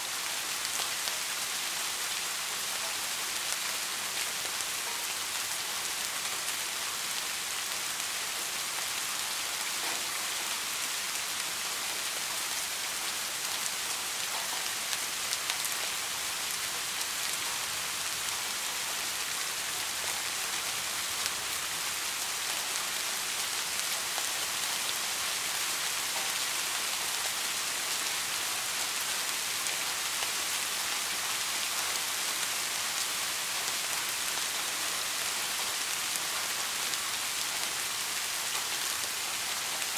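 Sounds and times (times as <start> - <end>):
soft steady rain: 0.0 - 39.9.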